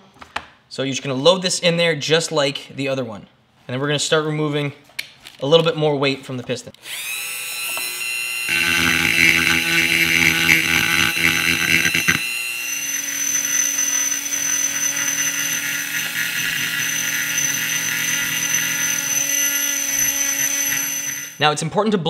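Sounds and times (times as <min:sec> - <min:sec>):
rotary tool grinding metal: 0:06.9 - 0:21.4.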